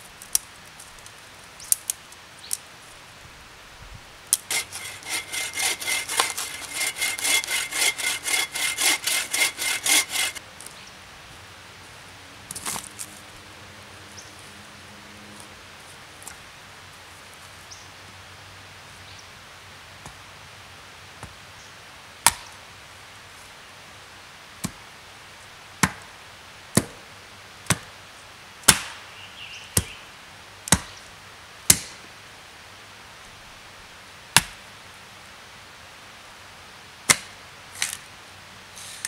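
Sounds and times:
axe chopping wood: 28.7s - 29.0s, 34.4s - 34.6s.

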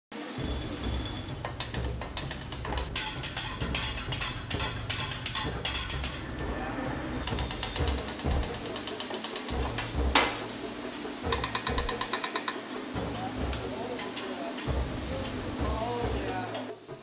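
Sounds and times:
metal spatulas clacking on griddle: 1.4s - 6.4s, 7.3s - 10.4s, 11.3s - 12.7s.

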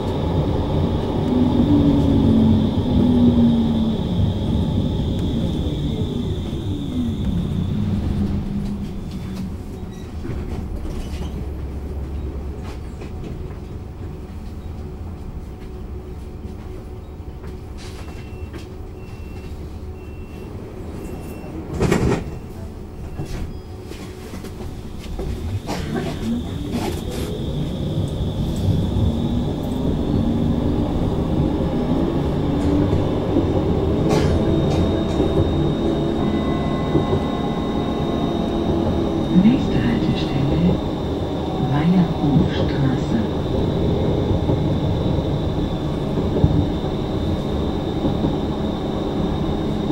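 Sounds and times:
tram wheels rumbling on rail: 0.0s - 49.9s.

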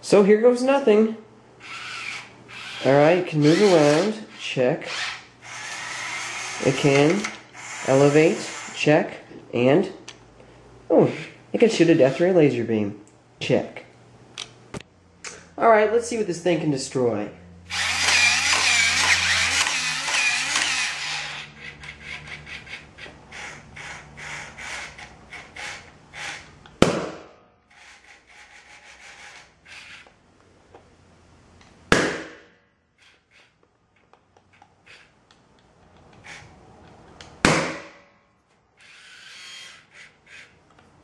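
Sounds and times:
toy robot gear motors whirring: 1.6s - 8.8s, 17.7s - 26.5s, 27.7s - 30.2s, 33.0s - 37.1s, 38.8s - 40.6s
robot clicking as it walks: 17.8s - 23.9s.

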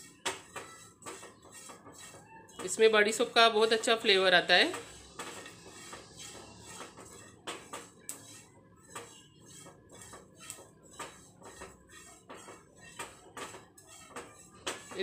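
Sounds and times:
spatula stirring seeds in pan: 0.0s - 15.0s.

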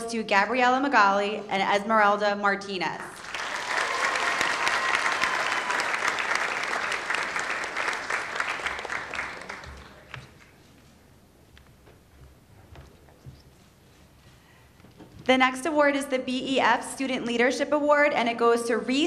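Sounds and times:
audience clapping: 3.2s - 10.7s.

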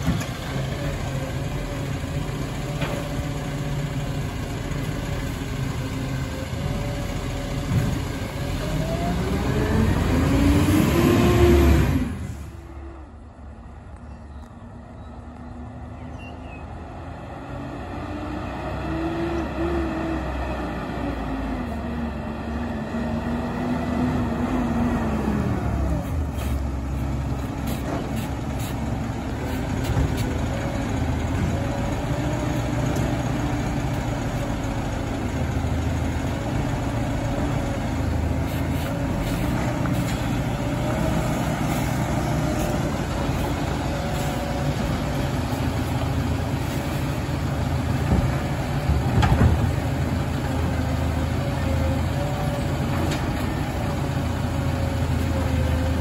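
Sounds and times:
diesel truck engine running: 0.0s - 56.0s
clunks: 47.9s - 50.0s.

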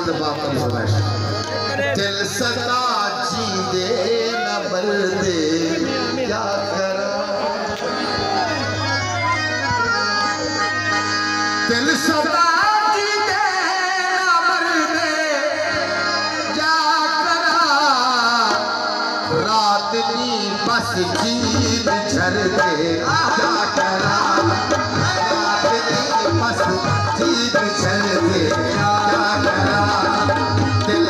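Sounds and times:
folk music over loudspeakers: 0.0s - 31.0s
man singing ornamented melody: 1.6s - 31.0s
hand drums: 21.0s - 31.0s.

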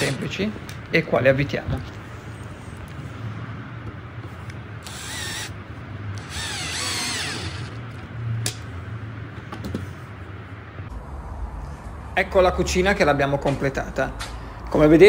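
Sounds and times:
cordless drill motor whine: 4.8s - 5.6s, 6.2s - 8.0s.

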